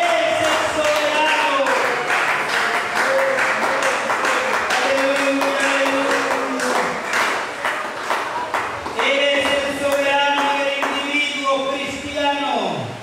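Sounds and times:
rhythmic hand clapping: 0.0s - 11.4s
church worship music: 0.0s - 13.0s.

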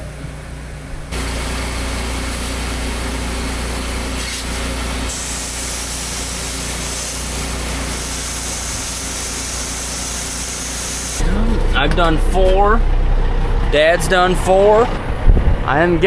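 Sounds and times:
grain auger machine drone: 1.1s - 15.1s
hiss of flowing grain: 5.1s - 11.2s.

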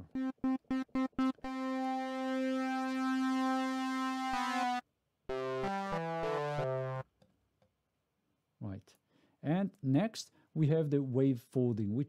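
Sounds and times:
synthesizer notes: 0.0s - 7.0s.

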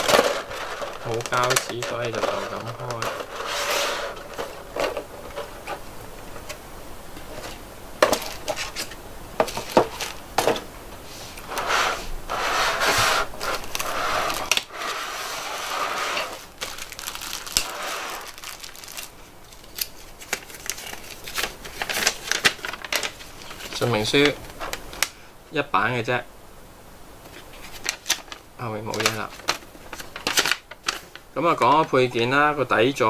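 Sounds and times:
plastic packaging crinkling: 0.0s - 6.4s, 7.3s - 10.5s, 13.2s - 25.1s, 27.4s - 32.1s.

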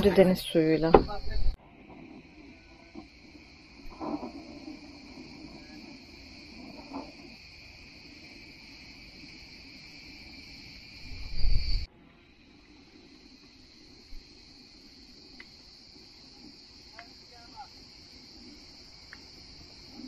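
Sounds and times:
crickets chirping: 0.0s - 20.0s.

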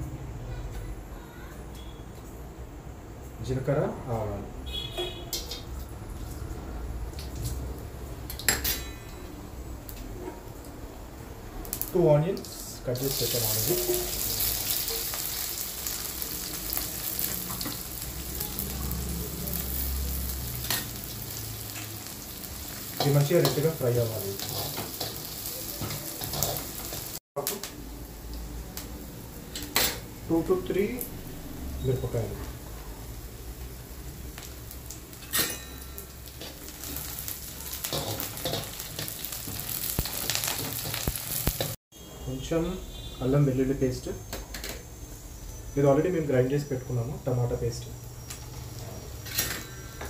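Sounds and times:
onions sizzling in hot oil: 11.5s - 41.8s
metal pan clang: 35.3s - 36.1s.

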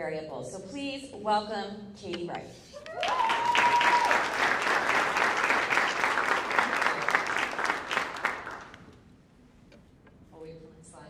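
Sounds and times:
audience applauding: 3.0s - 9.0s.

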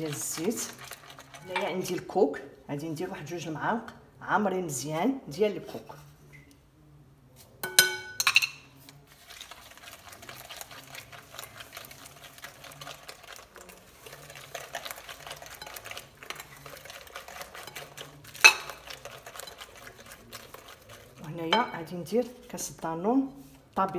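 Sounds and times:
whisk beating batter in glass bowl: 0.0s - 2.2s, 8.8s - 23.9s
whisk clinking against glass: 7.6s - 8.7s, 9.7s - 21.9s.

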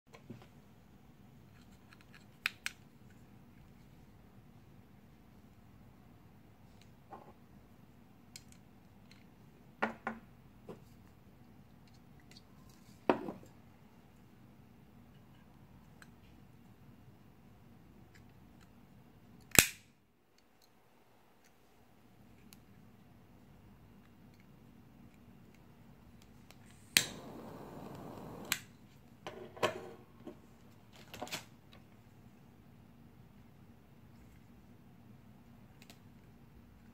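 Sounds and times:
gas hissing: 26.7s - 28.6s
lighter clicking: 27.0s - 28.6s.

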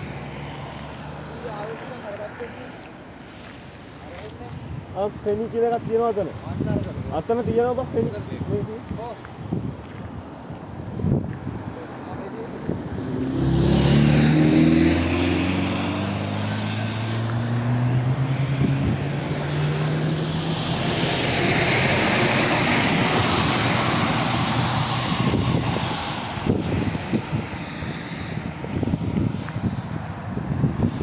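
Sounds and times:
vehicle engine passing by: 0.0s - 2.9s, 11.6s - 31.0s
tyres hissing on wet road: 0.0s - 4.4s, 11.7s - 31.0s
wind buffeting microphone: 4.3s - 16.4s, 17.1s - 31.0s.

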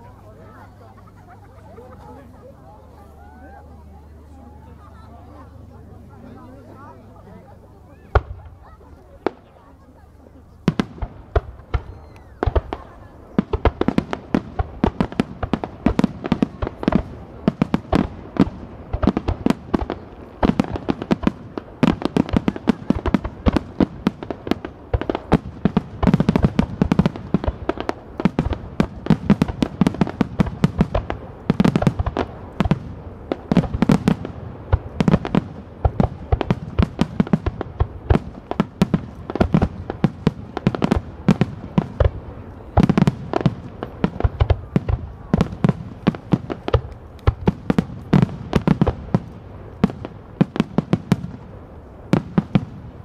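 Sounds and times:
fireworks launching and bursting: 10.7s - 53.0s.

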